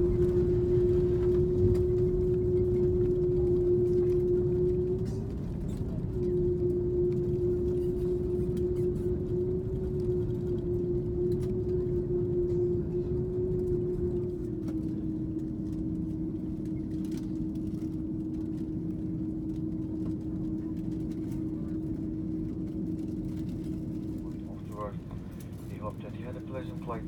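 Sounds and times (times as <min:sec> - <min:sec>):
steady whine: 0:00.0 - 0:21.0
airplane taxiing rumble: 0:00.0 - 0:27.0.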